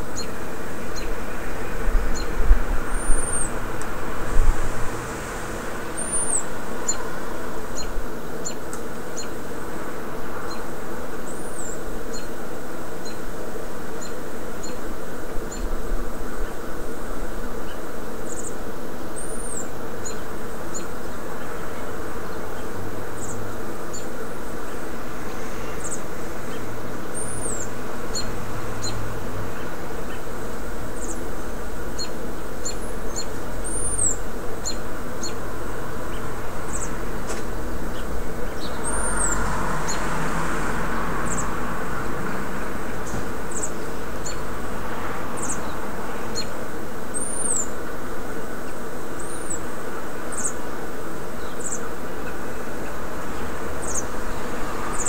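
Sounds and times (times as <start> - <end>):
buzzing drone: 0.0 - 11.7
birds chirping: 1.9 - 8.6, 25.7 - 40.1, 42.8 - 44.5, 45.4 - 46.6, 48.8 - 50.7, 51.3 - 54.2.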